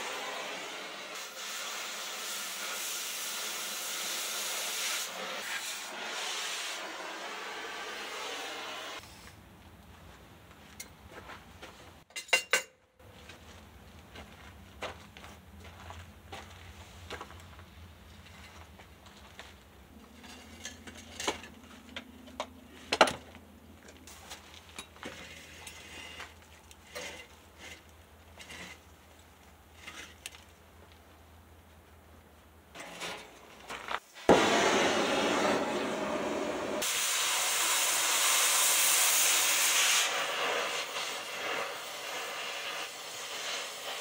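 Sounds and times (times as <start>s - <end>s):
metal tools clinking: 12.1s - 12.8s, 20.0s - 22.4s.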